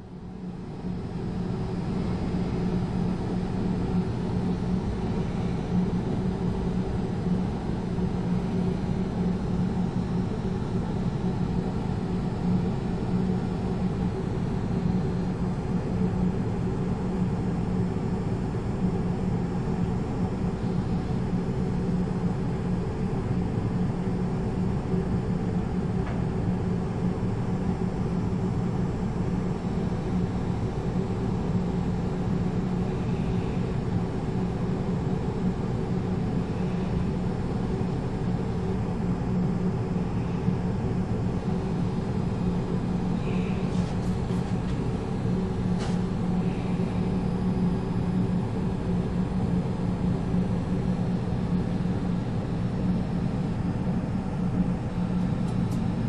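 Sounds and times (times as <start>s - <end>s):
low machine drone: 0.0s - 56.0s.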